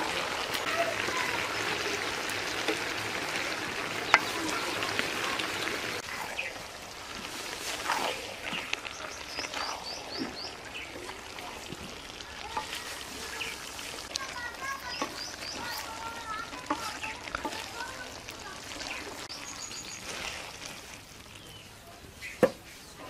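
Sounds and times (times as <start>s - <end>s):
curry sizzling in metal pan: 0.0s - 23.0s
wooden spatula stirring: 0.0s - 23.0s
bird chirping: 8.4s - 11.0s, 14.7s - 17.2s, 18.8s - 20.1s.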